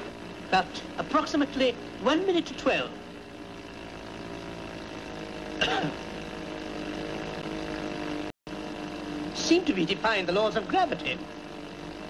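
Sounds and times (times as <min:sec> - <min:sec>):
aircraft engine droning: 0:00.0 - 0:12.0.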